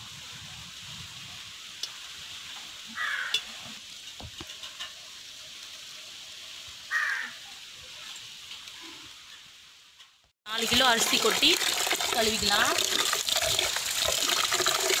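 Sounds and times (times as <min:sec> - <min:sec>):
pot sizzling over fire: 0:00.0 - 0:15.0
fire crackling: 0:03.8 - 0:07.0.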